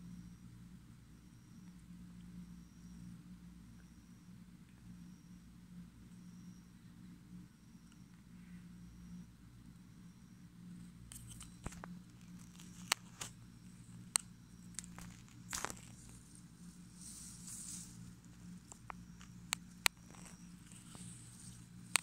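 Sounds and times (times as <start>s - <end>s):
faint low hum: 0.0s - 22.0s
footsteps through grass: 14.8s - 22.0s.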